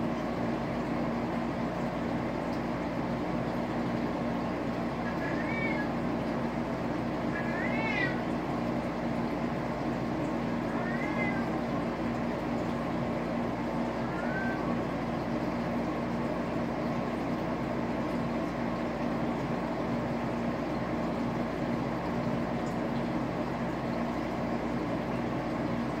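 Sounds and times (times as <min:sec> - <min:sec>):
aquarium equipment humming: 0:00.0 - 0:26.0.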